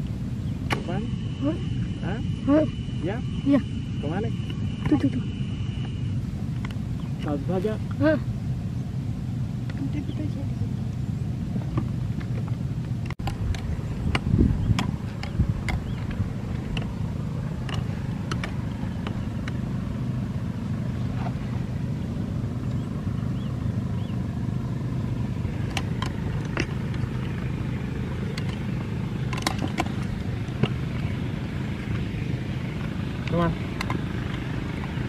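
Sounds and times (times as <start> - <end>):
small boat engine running: 0.0 - 35.0
sharp clicks and knocks: 11.6 - 17.0, 17.6 - 19.6, 25.6 - 27.3, 28.3 - 31.1, 33.2 - 35.0.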